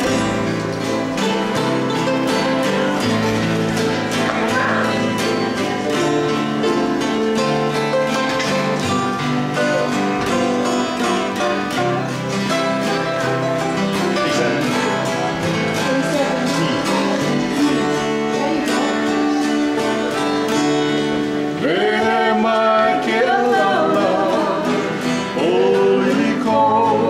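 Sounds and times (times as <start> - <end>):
acoustic guitars strumming: 0.0 - 27.0
person singing: 15.8 - 27.0.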